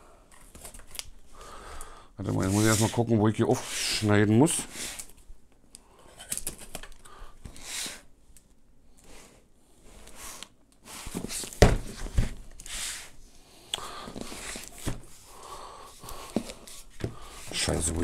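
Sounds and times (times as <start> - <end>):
cardboard and tape rustling: 10.9 - 13.0
box thumping on desk: 11.6 - 12.4.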